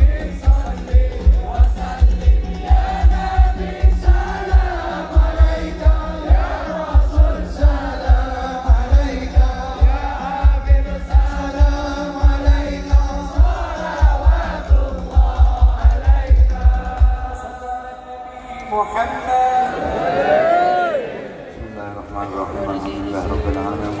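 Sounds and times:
rapid drum beat: 0.0 - 17.4
group singing: 0.0 - 18.6, 19.6 - 21.5.

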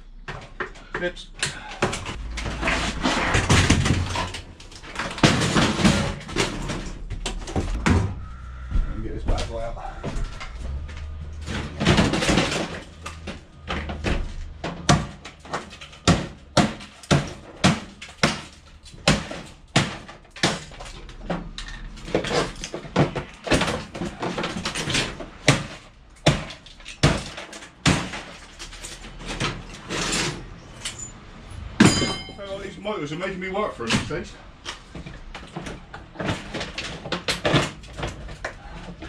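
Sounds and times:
sharp metal bangs: 30.4 - 33.0.

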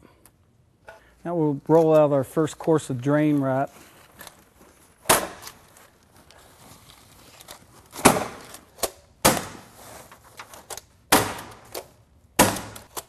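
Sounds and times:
wrap rustling: 3.4 - 8.7
hammer stapler strikes: 12.4 - 13.0.

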